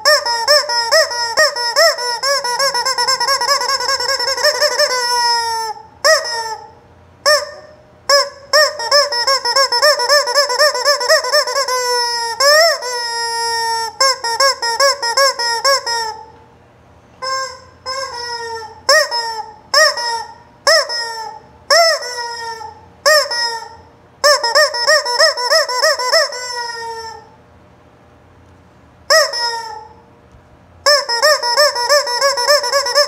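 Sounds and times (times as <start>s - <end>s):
rubber chicken toy squealing: 0.0s - 16.3s, 17.2s - 27.4s, 29.1s - 30.1s, 30.8s - 33.0s.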